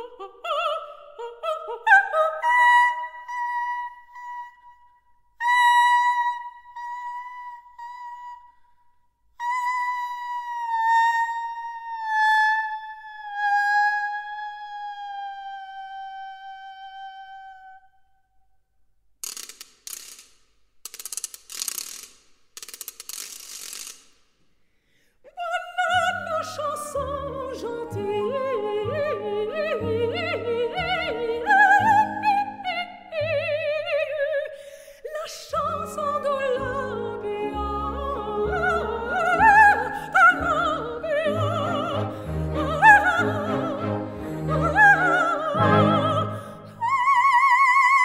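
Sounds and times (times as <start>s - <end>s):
soprano singing with orchestra: 0.0s - 4.8s, 5.4s - 8.5s, 9.4s - 17.9s, 25.3s - 48.0s
clockwork ratcheting: 19.2s - 24.2s.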